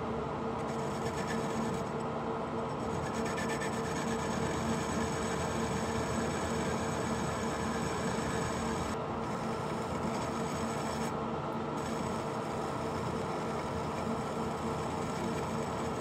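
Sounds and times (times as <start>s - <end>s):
lathe humming: 2.7s - 11.2s, 11.8s - 16.0s.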